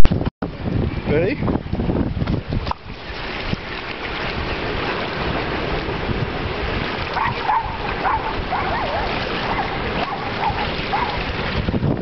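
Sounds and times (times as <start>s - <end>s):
wind on microphone: 0.0s - 12.0s
small waves lapping: 2.5s - 12.0s
dog whining: 7.2s - 11.2s.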